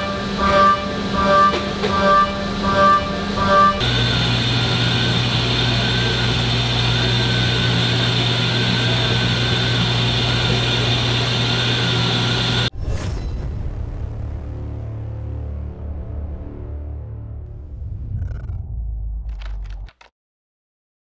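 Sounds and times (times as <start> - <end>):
milling machine hum and whine: 0.0 - 12.7.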